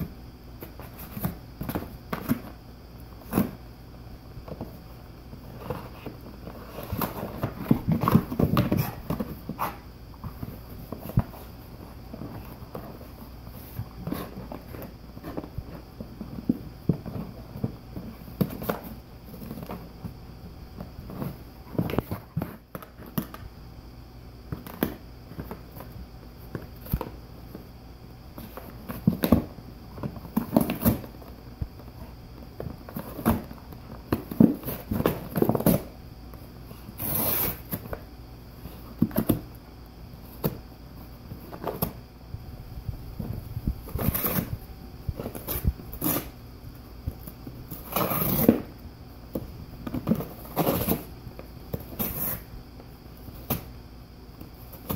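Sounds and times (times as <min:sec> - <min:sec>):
dog chewing and tearing cardboard: 0:47.8 - 0:48.7.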